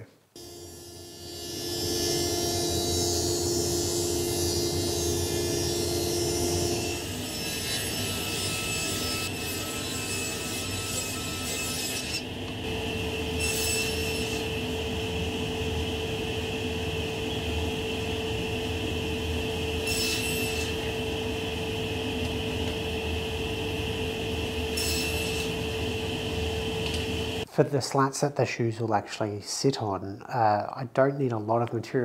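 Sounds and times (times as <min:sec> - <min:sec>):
table saw humming: 0:00.4 - 0:27.5
saw cutting wood strips: 0:01.3 - 0:12.6, 0:13.4 - 0:14.5, 0:19.8 - 0:20.9, 0:24.7 - 0:25.7.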